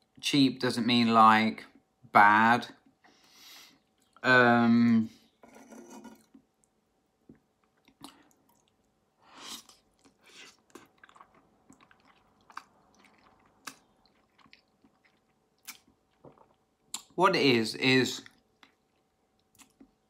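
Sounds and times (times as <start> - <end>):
chewing noodles: 7.6 - 17.1, 18.2 - 20.0
mouth smacks and clicks: 7.7 - 8.8, 9.4 - 17.2, 18.2 - 20.0.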